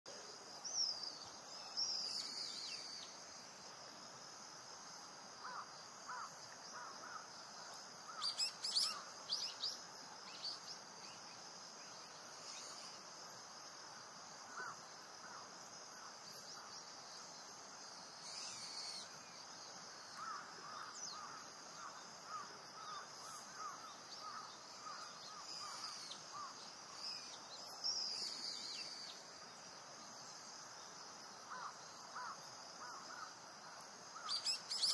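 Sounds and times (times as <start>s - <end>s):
high insect hum: 0.1s - 34.9s
high gliding bird calls: 34.2s - 34.9s.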